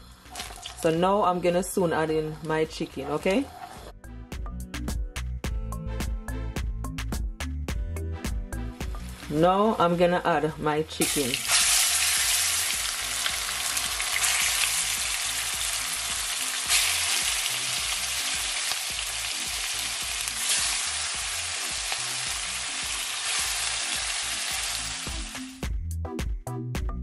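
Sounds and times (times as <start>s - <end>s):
chicken sizzling in hot oil: 11.0s - 25.6s.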